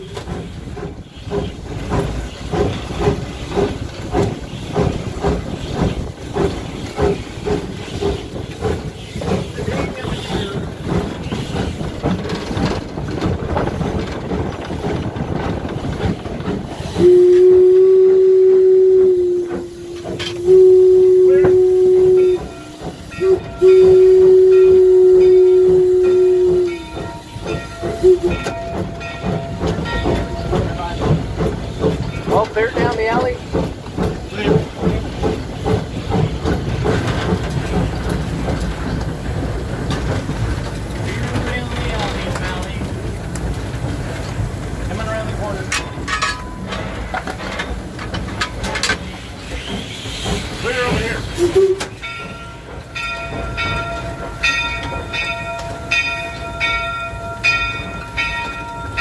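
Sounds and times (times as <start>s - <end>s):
steam locomotive beats and clatter: 0.0s - 59.0s
steam whistle blast: 17.0s - 26.8s, 51.4s - 52.0s.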